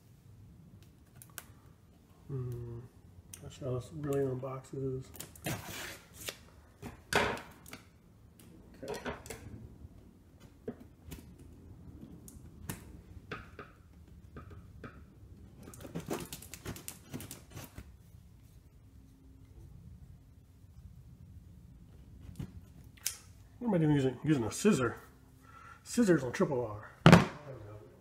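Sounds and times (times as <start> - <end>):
hands scraping cardboard box: 5.4 - 6.3.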